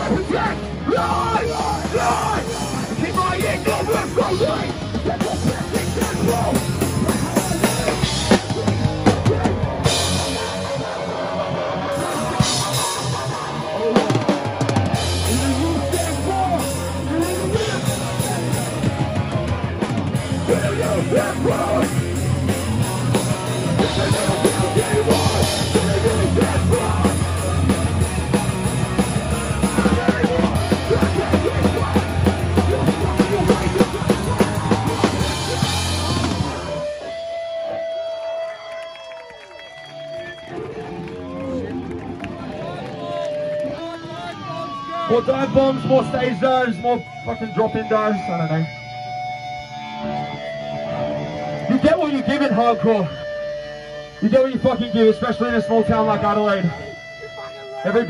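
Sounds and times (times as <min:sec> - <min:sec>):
hardcore punk band playing: 0:00.0 - 0:42.6, 0:43.3 - 0:58.0.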